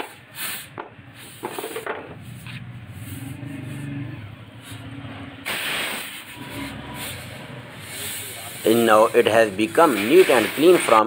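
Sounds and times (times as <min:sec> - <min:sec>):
pressurised spray hissing: 0:00.1 - 0:01.4, 0:05.4 - 0:11.0.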